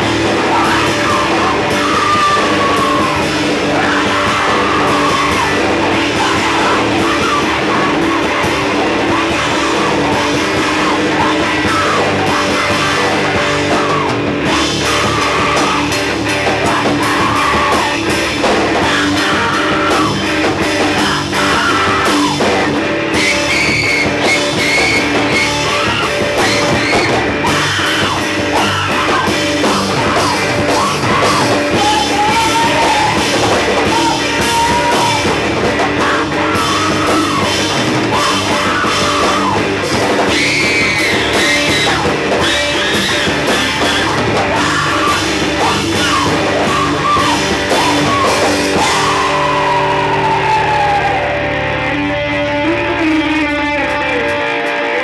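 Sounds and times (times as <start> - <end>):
drum kit with cymbals: 0.0 - 51.2
bass guitar: 0.0 - 55.0
rock vocals: 0.0 - 55.0.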